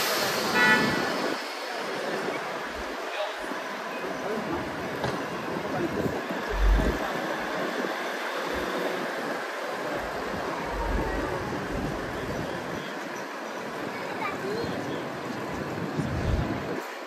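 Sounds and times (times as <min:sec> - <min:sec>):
diesel railcar running: 0:00.0 - 0:17.0
wind buffeting microphone: 0:05.3 - 0:12.8, 0:15.4 - 0:16.9.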